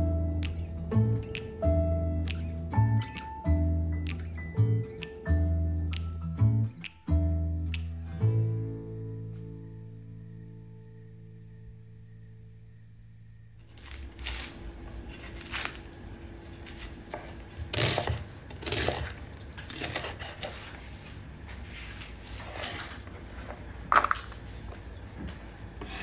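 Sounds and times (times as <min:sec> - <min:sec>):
knife chopping on wooden board: 0:17.1 - 0:19.1.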